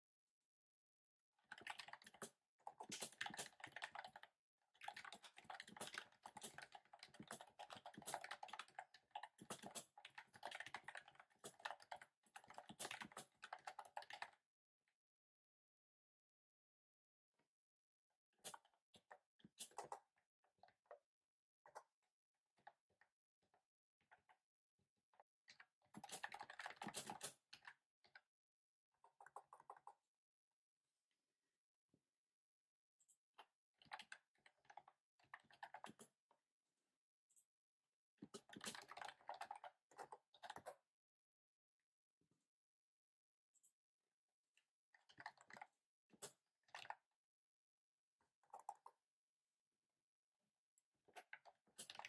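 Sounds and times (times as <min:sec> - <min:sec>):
typing on keyboard: 0:01.5 - 0:14.4, 0:25.9 - 0:27.7.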